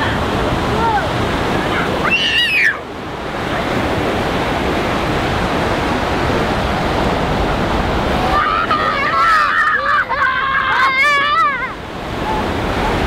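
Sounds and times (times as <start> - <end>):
ocean surf breaking: 0.0 - 13.0
child crying out: 2.0 - 2.8, 8.3 - 12.4.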